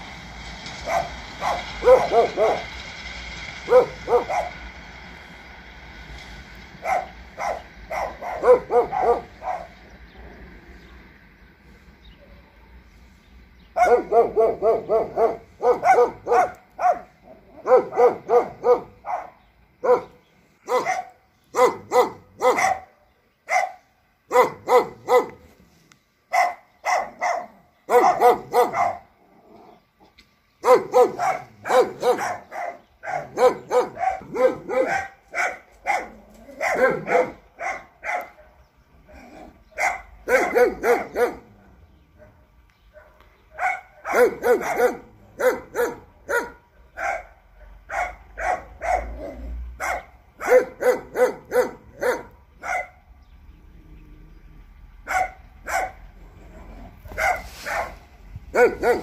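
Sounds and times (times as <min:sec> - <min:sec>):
dog barking: 0:00.8 - 0:02.7, 0:03.7 - 0:04.6, 0:06.8 - 0:09.8, 0:13.8 - 0:25.4, 0:26.3 - 0:29.1, 0:30.6 - 0:41.6, 0:42.2 - 0:53.1, 0:55.0 - 0:56.2, 0:57.1 - 0:59.0.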